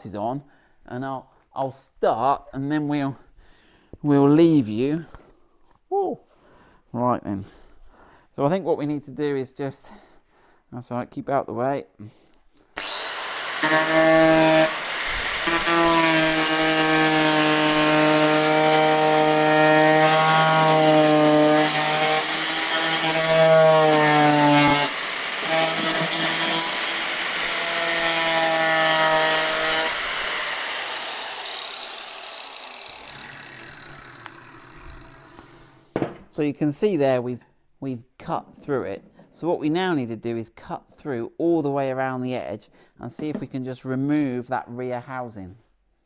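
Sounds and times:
angle grinder cutting plastic: 0:12.8 - 0:35.8.

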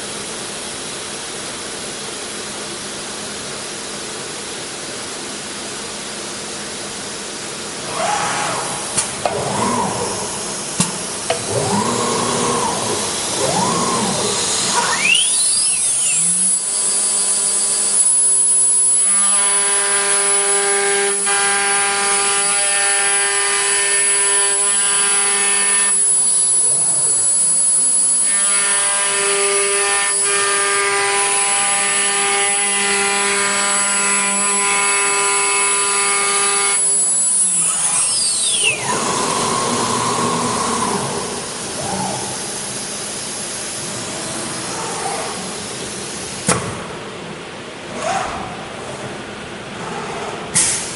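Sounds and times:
motor whining: 0:07.8 - 0:17.3, 0:36.7 - 0:42.9
router bit cutting wood: 0:07.8 - 0:42.6.

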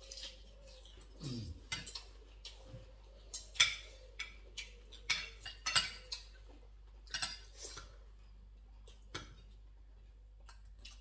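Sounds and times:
cutlery clinking on plates: 0:03.3 - 0:08.0.

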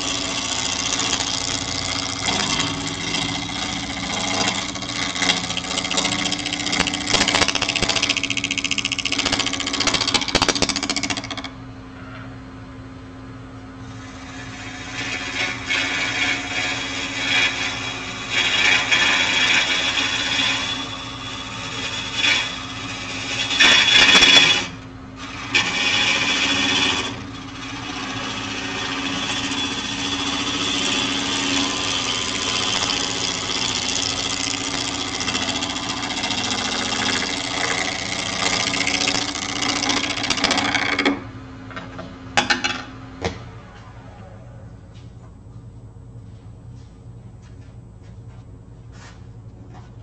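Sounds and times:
gouge cutting wood on lathe: 0:00.0 - 0:11.5, 0:14.0 - 0:41.2
wood lathe humming: 0:00.0 - 0:11.6, 0:13.8 - 0:41.3.

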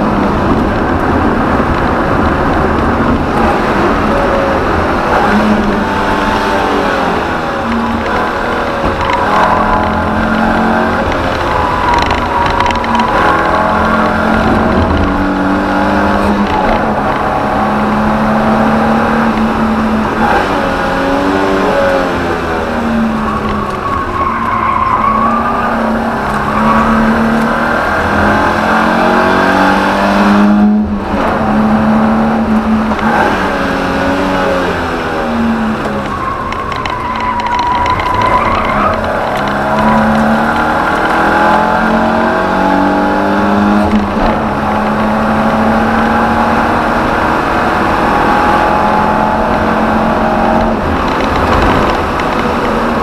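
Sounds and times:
car engine revving: 0:00.0 - 0:53.0
tyres squealing: 0:23.0 - 0:27.4, 0:35.6 - 0:41.5.

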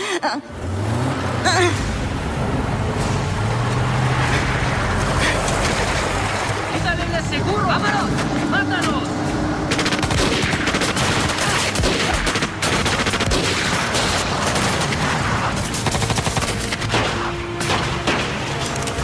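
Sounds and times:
automatic rifles firing: 0:09.7 - 0:19.0.

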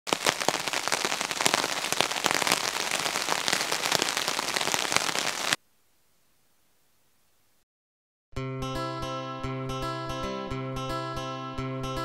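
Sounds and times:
rain falling on a pond: 0:00.1 - 0:05.6.

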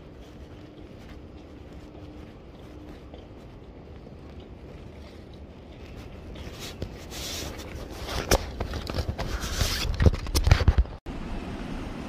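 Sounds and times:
low steady rumble: 0:00.0 - 0:08.0
camera handling rustling: 0:06.3 - 0:11.0.

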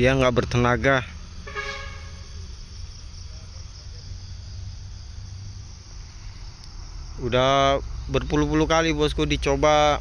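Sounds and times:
crickets chirring: 0:00.0 - 0:10.0
low steady rumble: 0:00.0 - 0:10.0.

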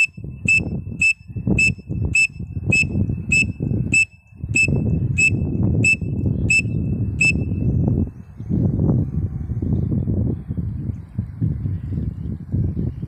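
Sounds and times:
high-pitched whistle notes: 0:00.0 - 0:07.7
low rumble: 0:00.0 - 0:13.0.

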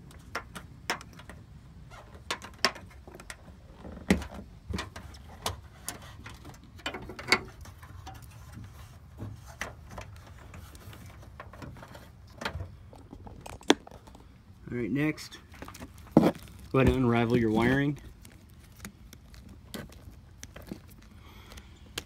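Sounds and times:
wire clicking and knocking: 0:02.1 - 0:14.2.

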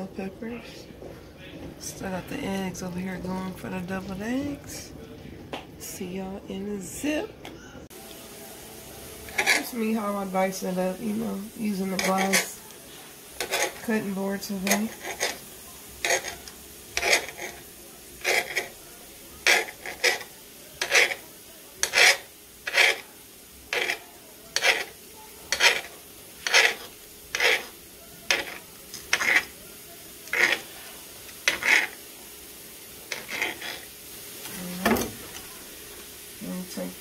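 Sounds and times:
knife cutting on glass board: 0:24.6 - 0:24.9, 0:25.5 - 0:27.7.

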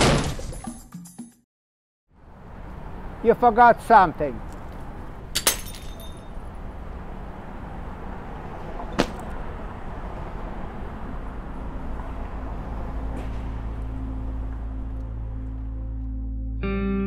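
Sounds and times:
traffic rumble: 0:02.1 - 0:16.5
sharp knock: 0:09.0 - 0:09.2.

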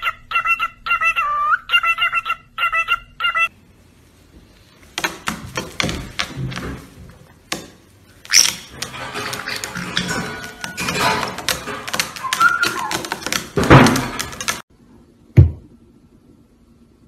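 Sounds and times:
parrots scuffling on a tabletop: 0:04.4 - 0:14.6
cockatiel whistled chirps: 0:12.2 - 0:13.1.

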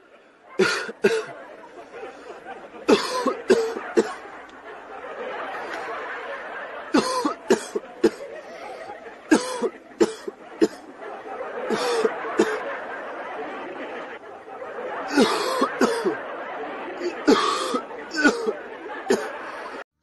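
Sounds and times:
background murmur: 0:00.0 - 0:19.8
person coughing: 0:00.6 - 0:01.3, 0:07.0 - 0:08.2, 0:09.3 - 0:10.8.

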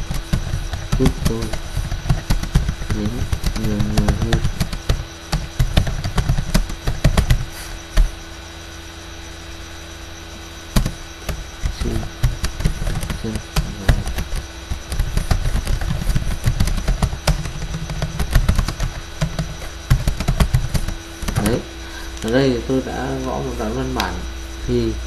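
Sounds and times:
keyboard typing: 0:00.0 - 0:08.2, 0:10.7 - 0:22.5.

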